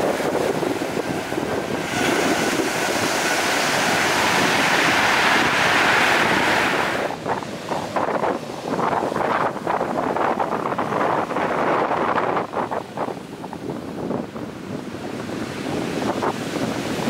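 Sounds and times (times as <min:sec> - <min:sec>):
surf washing up pebble beach: 0:00.0 - 0:13.1
wind buffeting microphone: 0:00.0 - 0:17.0.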